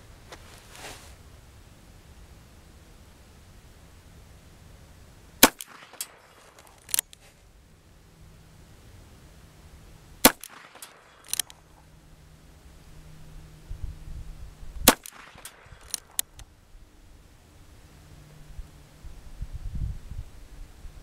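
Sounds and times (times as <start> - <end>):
revolver gunshots: 5.4 - 7.0, 10.2 - 11.7, 14.8 - 16.4
faint sharp cracks: 5.4 - 7.3, 10.2 - 11.9, 14.8 - 16.5.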